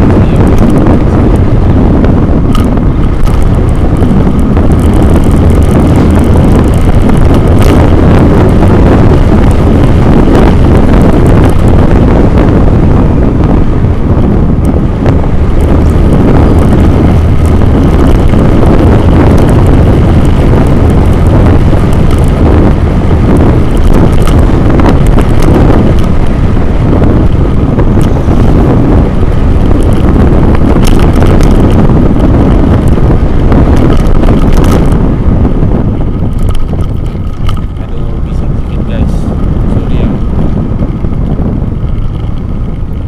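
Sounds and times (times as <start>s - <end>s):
vehicle running: 0.0s - 43.0s
wind buffeting microphone: 0.0s - 43.0s.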